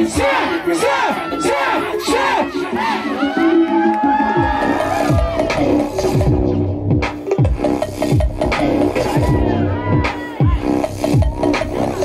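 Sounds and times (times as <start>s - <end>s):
hip-hop beat: 0.0s - 12.0s
deep bass notes sliding down: 4.3s - 12.0s.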